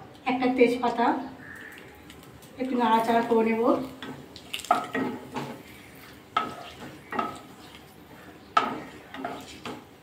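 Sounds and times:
oil sizzling: 0:01.6 - 0:10.0
wooden spatula knocking metal pan: 0:06.4 - 0:07.5, 0:08.6 - 0:09.8.

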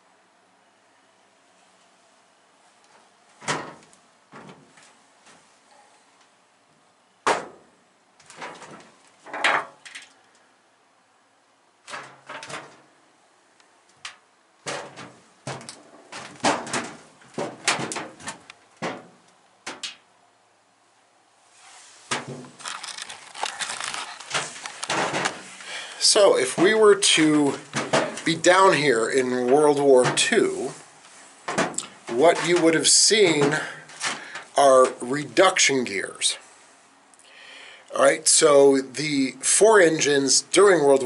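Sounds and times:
metal clanks and thuds: 0:03.4 - 0:04.8, 0:07.3 - 0:09.9, 0:11.9 - 0:12.8, 0:14.6 - 0:19.9, 0:22.1 - 0:25.6, 0:27.7 - 0:28.4, 0:31.5 - 0:34.3
footsteps on steel ladder: 0:03.4 - 0:05.4, 0:08.2 - 0:10.0, 0:11.9 - 0:12.9, 0:13.9 - 0:20.0, 0:22.1 - 0:30.8, 0:31.4 - 0:35.0
rustling of movement: 0:21.4 - 0:35.5.

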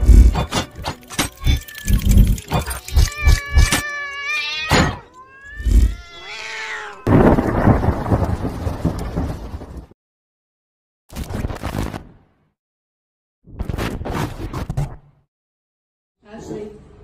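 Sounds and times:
wailing animal-like cry: 0:01.2 - 0:07.1
rolling thunder rumble: 0:07.0 - 0:10.0.

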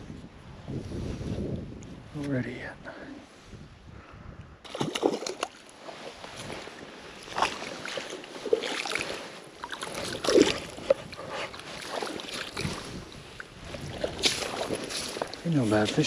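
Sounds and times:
footsteps splashing through water: 0:04.6 - 0:15.9.

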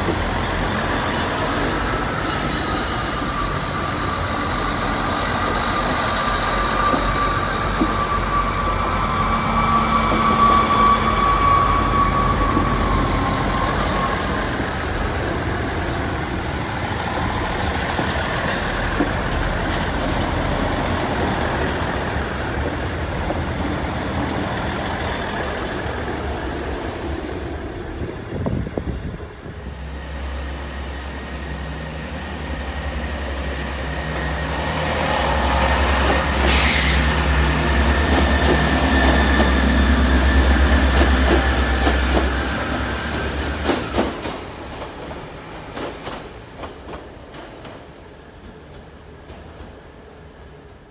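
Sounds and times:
standing train diesel hum: 0:00.0 - 0:50.9
train rumbling past: 0:00.0 - 0:50.9
air hiss: 0:36.3 - 0:37.3.

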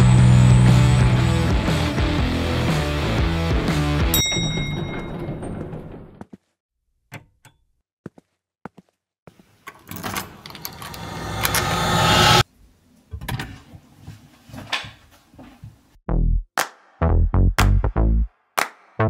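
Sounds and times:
whoosh: 0:10.5 - 0:12.4.

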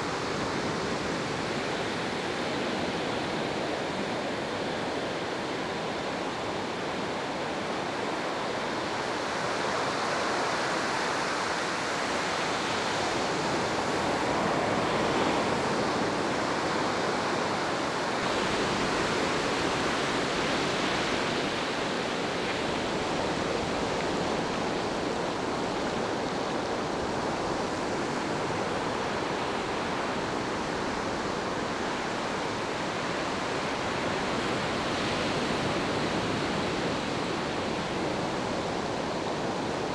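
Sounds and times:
ocean surf washing on beach: 0:00.0 - 0:39.9.

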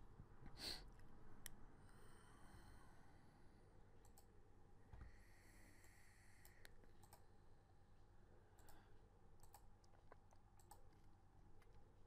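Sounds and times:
computer mouse clicks: 0:04.0 - 0:04.3, 0:05.8 - 0:07.3, 0:08.6 - 0:08.8, 0:09.4 - 0:11.8.

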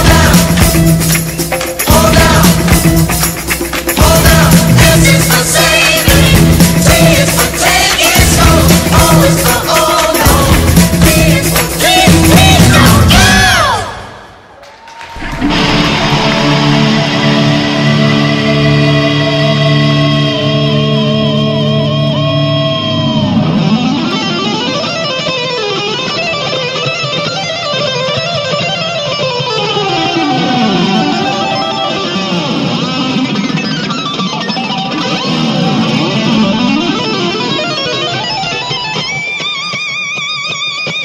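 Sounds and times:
electric guitar pitch bends: 0:15.1 - 0:41.0.

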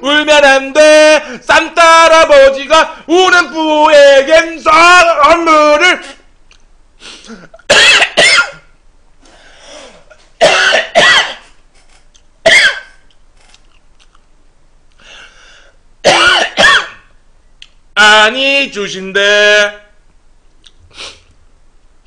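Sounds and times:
man coughing hard: 0:07.3 - 0:08.7, 0:10.4 - 0:11.6, 0:12.4 - 0:13.0, 0:16.0 - 0:17.1.

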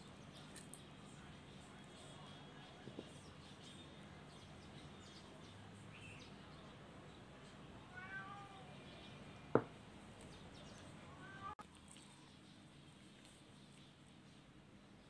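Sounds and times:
cat meowing: 0:07.9 - 0:08.8, 0:11.1 - 0:11.6.

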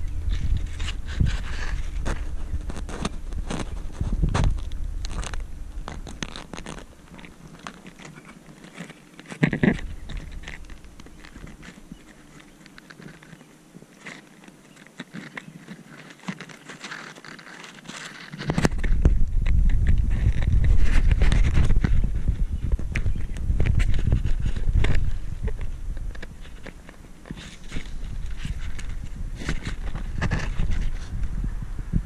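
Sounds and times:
camera handling rumble: 0:00.0 - 0:32.0
grass brushing against camera: 0:00.0 - 0:32.0.

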